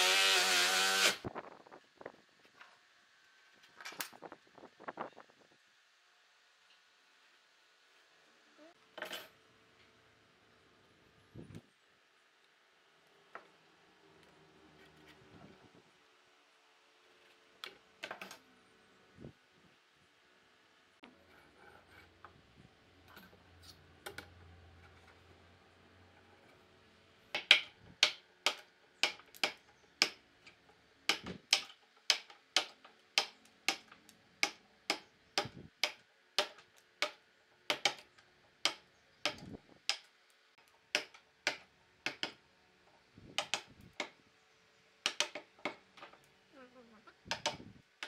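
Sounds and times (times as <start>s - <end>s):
wood chisel cracking into wood: 31.1s - 40.1s, 40.9s - 42.4s, 45.0s - 45.9s.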